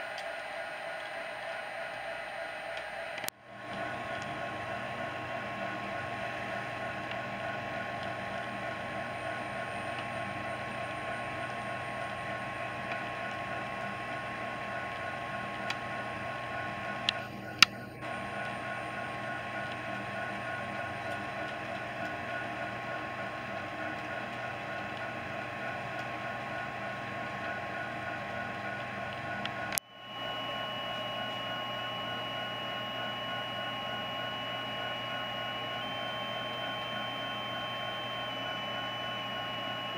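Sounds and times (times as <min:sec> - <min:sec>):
steady tones: 0:14.9 - 0:39.9
pulsing tone: 0:27.4 - 0:39.9.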